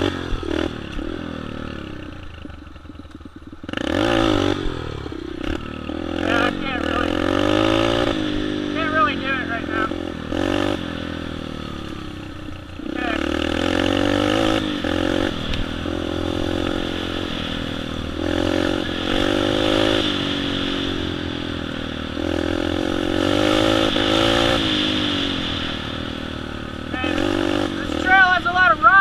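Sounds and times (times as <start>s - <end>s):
dirt bike engine revving: 0.0s - 29.0s.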